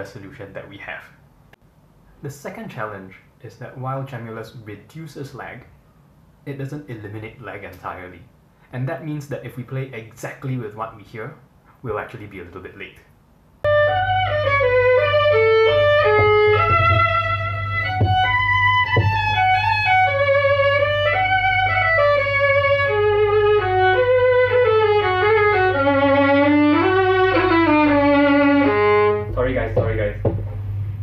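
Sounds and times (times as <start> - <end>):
steady low hum: 0.0 - 31.0
violin melody played with bow: 13.7 - 30.2.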